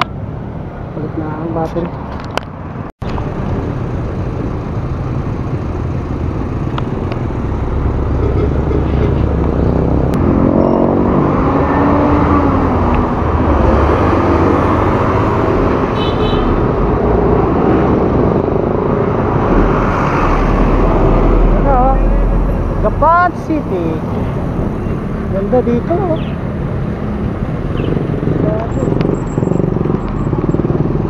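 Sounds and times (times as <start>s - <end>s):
motorcycle engine: 3.0s - 31.0s.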